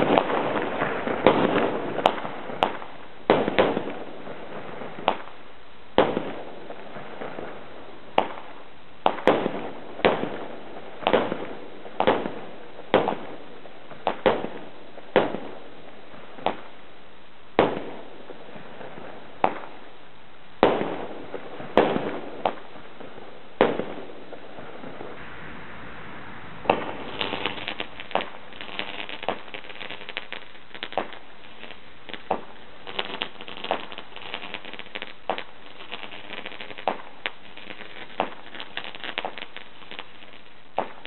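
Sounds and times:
fireworks bangs: 0.0 - 16.8, 17.5 - 20.0, 20.6 - 41.0.

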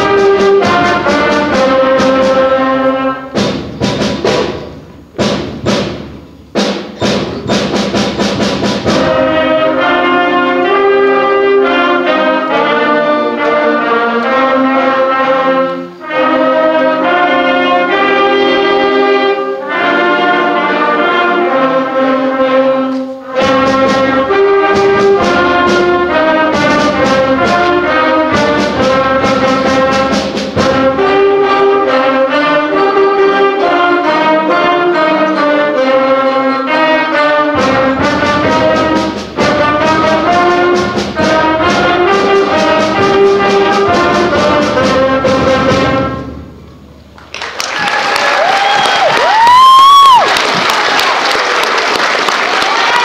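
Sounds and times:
school band playing brass and saxophones: 0.0 - 47.0, 47.9 - 53.0
audience applause: 47.2 - 53.0.

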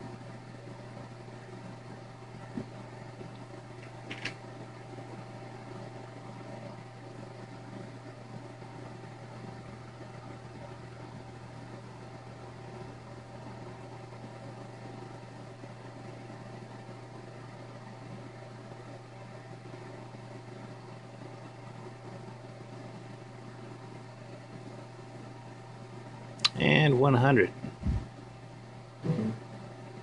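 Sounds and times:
mechanical fan hum: 0.0 - 30.0
faint high whine: 28.9 - 30.0.

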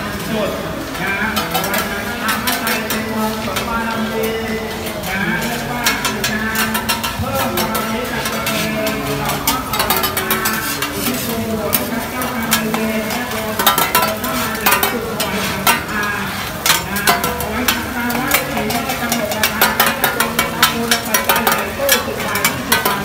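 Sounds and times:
egg sizzling on griddle: 0.2 - 23.0
metal spatulas scraping griddle: 1.2 - 23.0.

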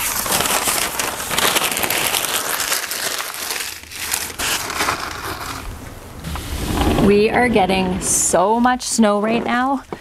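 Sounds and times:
newspaper crumpling: 0.0 - 5.9.

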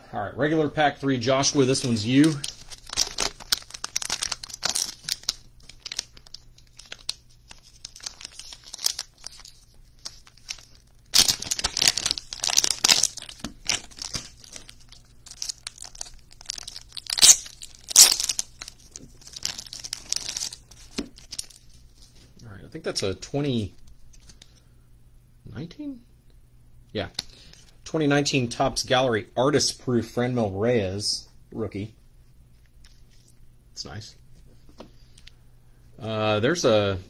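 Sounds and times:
cards in plastic sleeves rustling: 1.4 - 22.4, 23.6 - 24.6
foil wrapper tearing and crinkling: 1.7 - 22.1.

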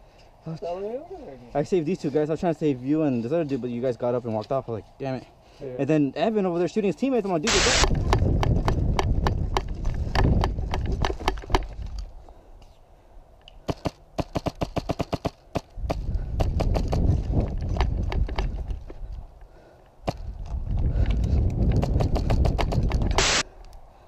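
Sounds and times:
airsoft rifle rapid firing: 23.2 - 23.4.

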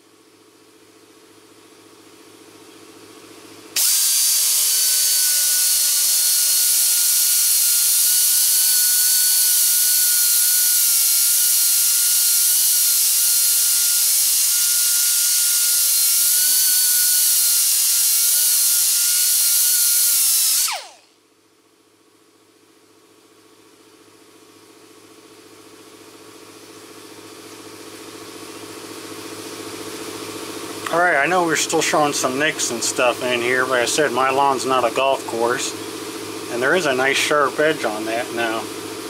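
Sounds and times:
die grinder grinding metal: 3.8 - 21.0, 31.8 - 39.0.

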